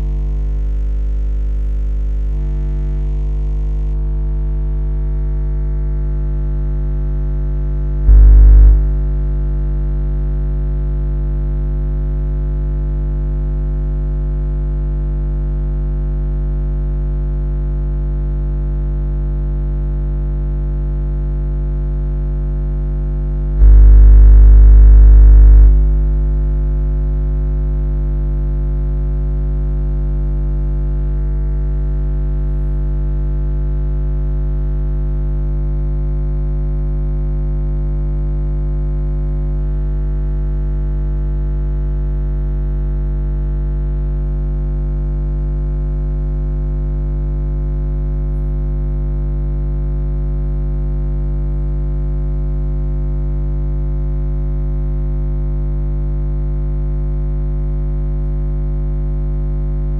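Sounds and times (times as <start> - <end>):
low synthesizer drone: 8.1 - 9.0, 23.6 - 26.3.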